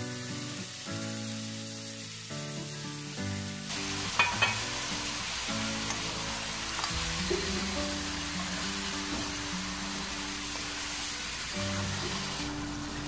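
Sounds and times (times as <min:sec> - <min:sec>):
background music: 0:00.0 - 0:13.0
meat sizzling in a pan: 0:00.0 - 0:13.0
spatula knocking against pan: 0:04.2 - 0:04.6.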